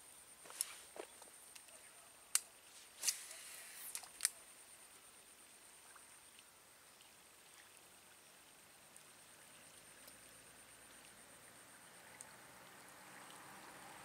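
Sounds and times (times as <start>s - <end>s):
faint high-pitched whine: 0.0s - 14.0s
fishing reel clicks: 2.3s - 4.4s.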